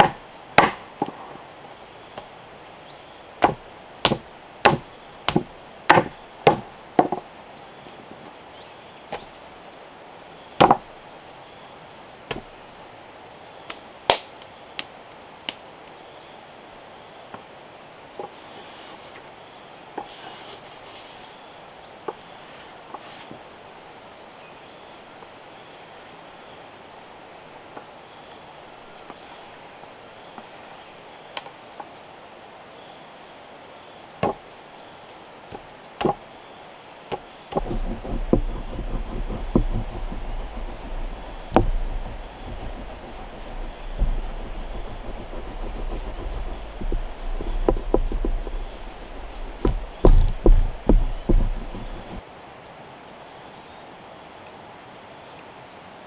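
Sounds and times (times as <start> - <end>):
clay lumps knocking on wood: 3.4 - 7.2, 37.1 - 52.2
rolling pin rolling clay: 37.5 - 52.2.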